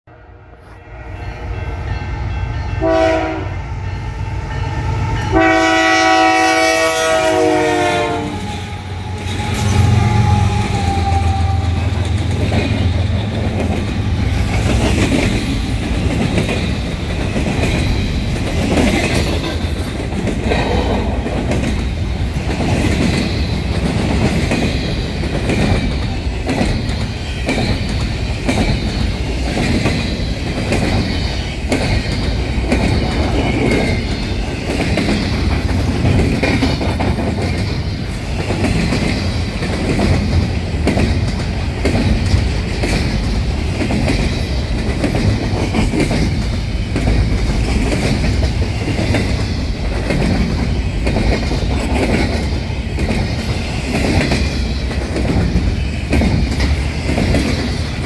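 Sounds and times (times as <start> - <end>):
diesel locomotives droning: 0.1 - 58.0
locomotive air horn: 2.8 - 3.7, 4.7 - 12.0
train wheels clickety-clack: 4.4 - 58.0.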